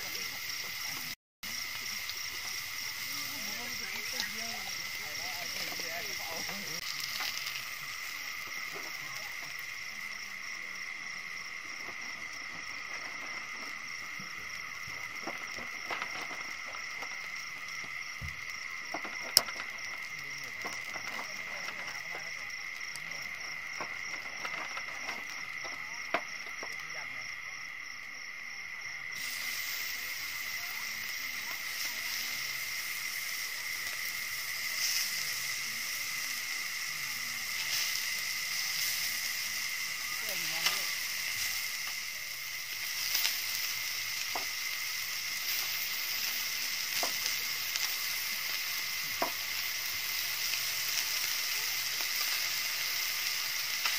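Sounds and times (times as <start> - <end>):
meat sizzling on grill plate: 0.0 - 27.5, 28.1 - 53.9
night insects trilling: 0.0 - 53.9
soft hiss: 29.2 - 53.9.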